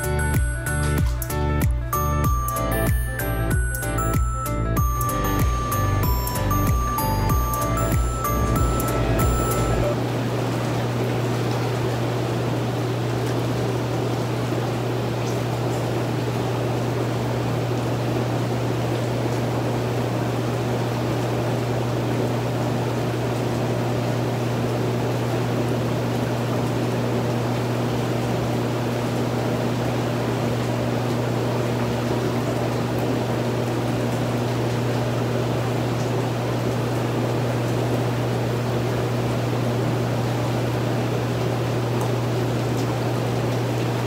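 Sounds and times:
jet pump hum: 0:00.0 - 0:44.0
churning bubbling water: 0:10.0 - 0:44.0.

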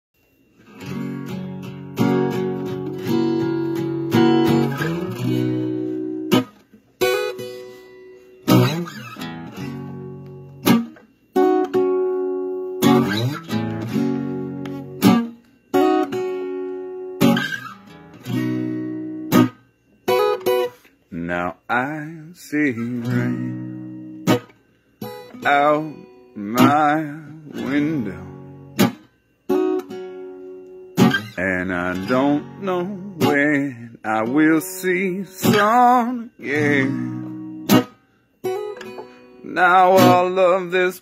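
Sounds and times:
acoustic guitar chords: 0:00.2 - 0:41.0.

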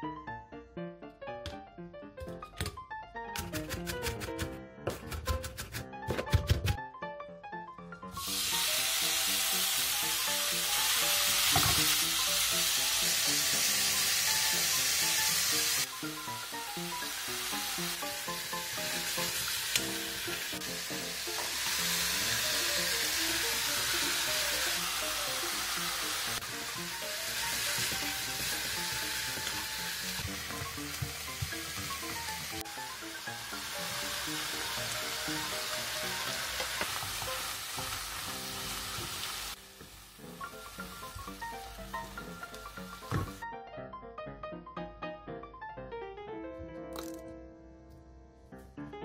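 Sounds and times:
meat sizzling in a pan: 0:08.1 - 0:43.4.

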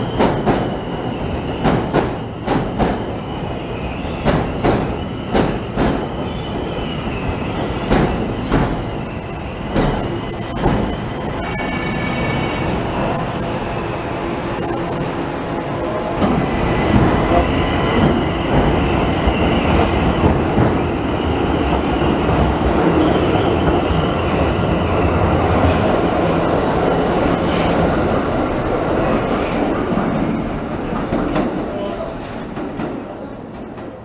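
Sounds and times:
train wheel squeal: 0:00.0 - 0:16.5
trains rumbling and clattering: 0:00.0 - 0:34.0.

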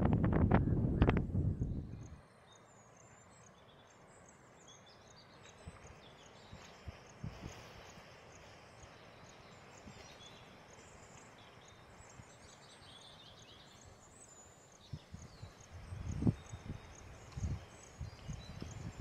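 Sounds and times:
low rumbling thumps: 0:00.0 - 0:01.9
faint hiss: 0:00.8 - 0:19.0.

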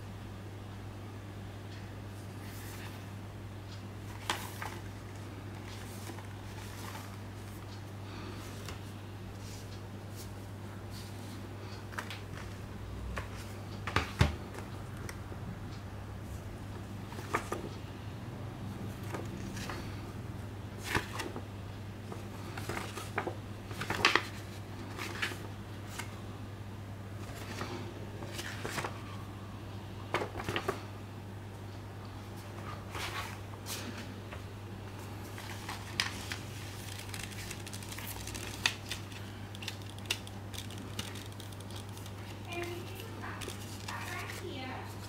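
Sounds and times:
steady low hum: 0:00.0 - 0:45.0
paper rustling: 0:04.1 - 0:07.7, 0:20.8 - 0:21.4, 0:22.0 - 0:26.1, 0:27.2 - 0:29.0, 0:32.6 - 0:34.1, 0:35.0 - 0:45.0.

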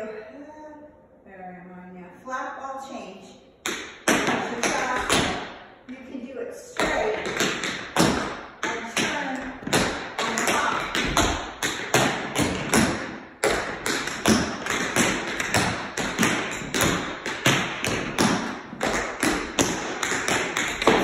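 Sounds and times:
tap shoes on wooden floor: 0:03.7 - 0:05.5, 0:06.8 - 0:21.0.

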